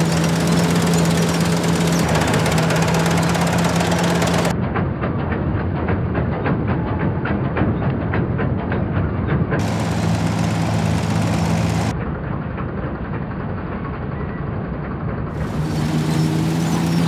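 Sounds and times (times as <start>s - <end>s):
combine harvester threshing: 0.0s - 4.5s, 9.6s - 11.9s, 15.4s - 17.0s
diesel tractor engine under load: 0.0s - 4.6s, 9.6s - 11.9s, 15.3s - 17.0s.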